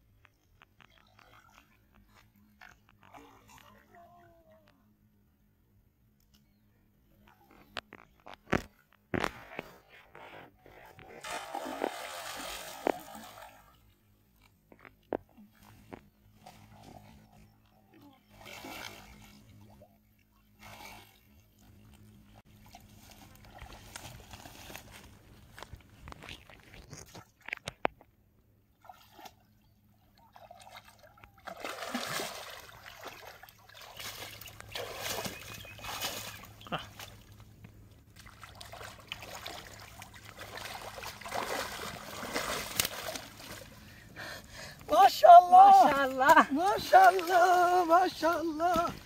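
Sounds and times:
fish splashing in water: 11.2s - 13.7s, 30.3s - 37.3s, 38.2s - 43.8s.

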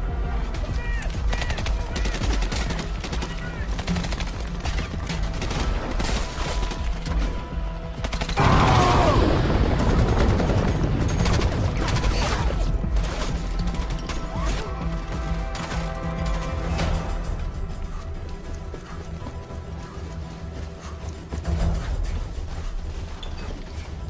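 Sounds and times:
background music: 0.0s - 24.0s
rapid gunfire: 0.6s - 6.9s, 8.0s - 14.6s.

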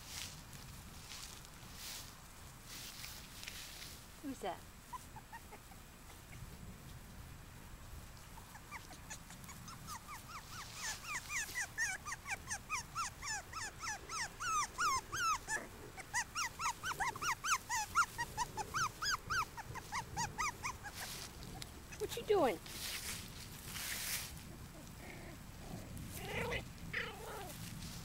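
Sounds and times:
puppies yipping and whining: 4.9s - 6.5s, 8.3s - 22.5s, 26.1s - 27.6s.

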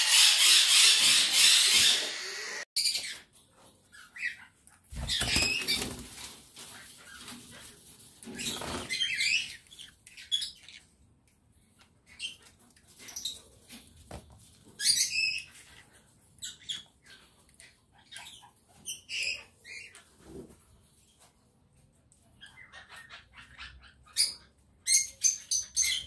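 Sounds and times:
parrots chirping and squawking: 0.0s - 13.8s, 14.5s - 20.8s, 22.2s - 26.0s
wings fluttering: 4.9s - 9.1s.

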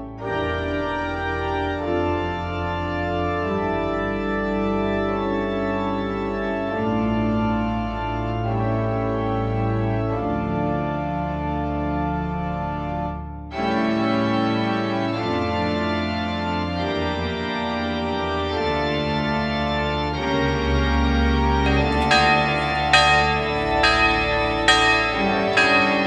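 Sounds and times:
organ playing sustained chords: 0.0s - 26.0s.

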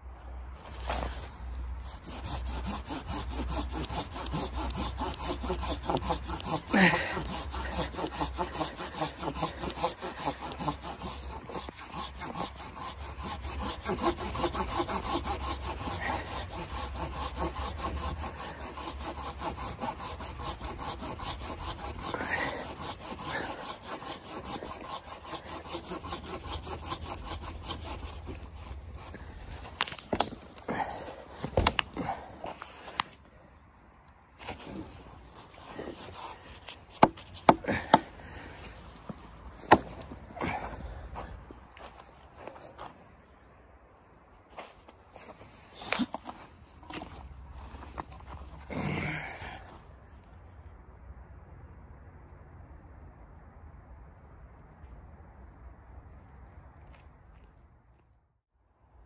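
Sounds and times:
hand saw cutting log: 0.6s - 33.2s, 34.4s - 43.1s, 44.5s - 49.7s
sharp wooden knocks: 37.0s - 38.0s.

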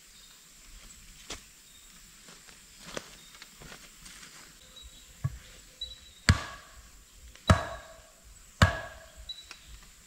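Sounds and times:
tool striking wood: 6.3s - 6.8s, 7.5s - 8.0s, 8.6s - 9.2s.

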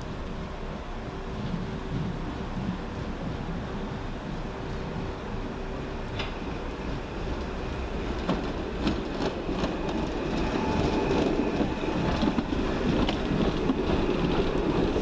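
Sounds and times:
railcar passing: 0.0s - 15.0s
wheels clicking over rail joints: 6.0s - 15.0s.

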